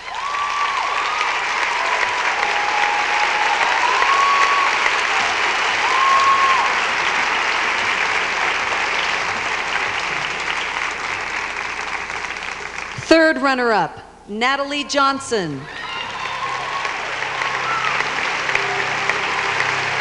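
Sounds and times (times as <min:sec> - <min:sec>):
cheering calls: 0:00.0 - 0:10.9, 0:15.6 - 0:20.0
audience applauding: 0:00.0 - 0:13.0, 0:15.7 - 0:20.0.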